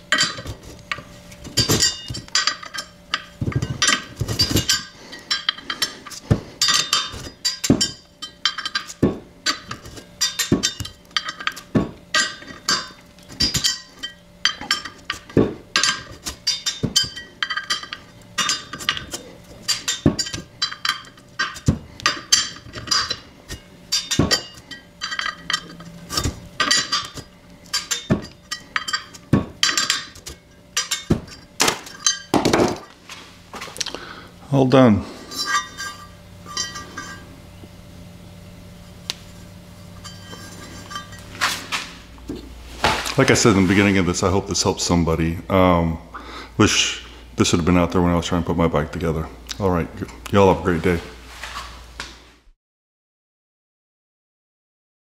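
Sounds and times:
metal tools clinking: 0.1 - 32.9, 35.3 - 37.3, 40.0 - 42.0.

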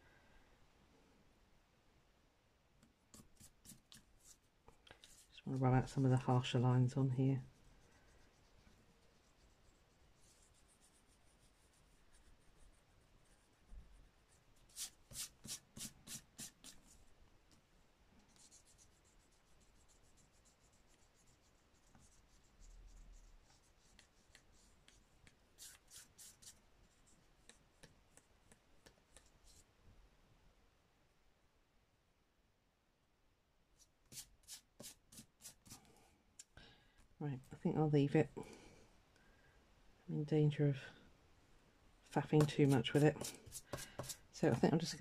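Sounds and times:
eraser rubbing on paper: 14.7 - 17.0, 18.4 - 26.6, 34.1 - 35.8, 42.4 - 45.0.

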